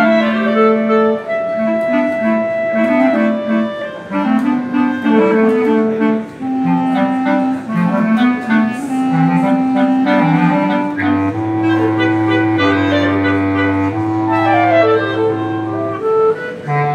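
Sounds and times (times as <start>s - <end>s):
clarinet ensemble playing: 0.0s - 16.9s.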